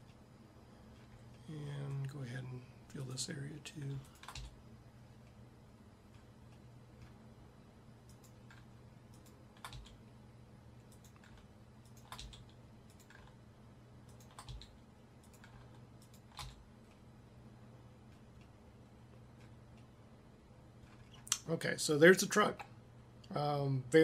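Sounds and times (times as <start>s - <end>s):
low steady hum: 0.0s - 24.0s
keyboard and mouse clicking: 4.1s - 4.6s, 8.0s - 10.0s, 10.9s - 13.4s, 14.0s - 17.0s.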